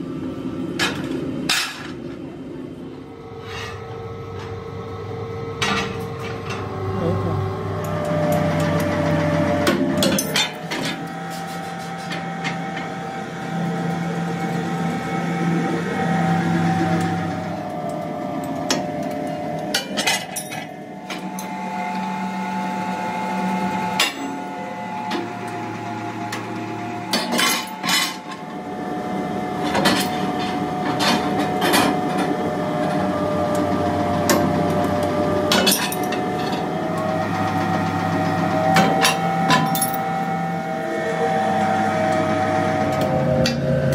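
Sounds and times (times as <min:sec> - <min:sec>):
punch press humming: 0:00.0 - 0:43.9.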